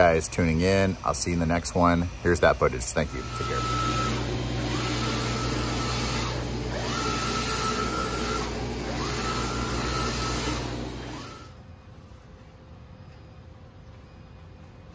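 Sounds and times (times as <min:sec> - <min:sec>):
steady machine hum: 0:00.0 - 0:14.9
printer carriage motor whine: 0:03.0 - 0:11.6.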